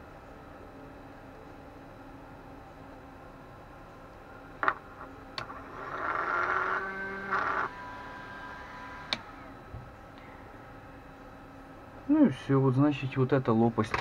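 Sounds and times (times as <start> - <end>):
cooling fan running loud: 0.0 - 14.0
fan winding down: 5.4 - 9.8.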